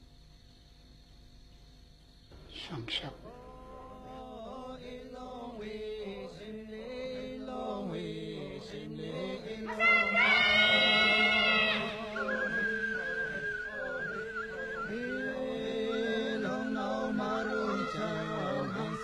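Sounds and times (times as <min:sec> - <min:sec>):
slow chant-like singing: 0:02.3 - 0:19.0
higher louder voice singing: 0:03.2 - 0:19.0.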